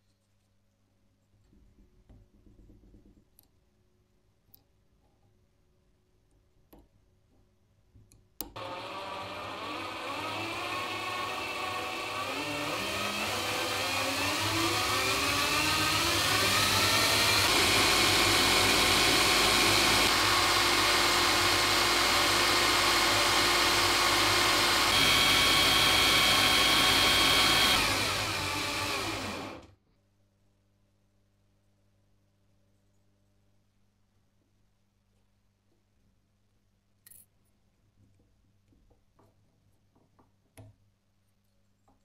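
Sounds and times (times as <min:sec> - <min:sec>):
machine tool motor whirring: 0:23.8 - 0:29.7.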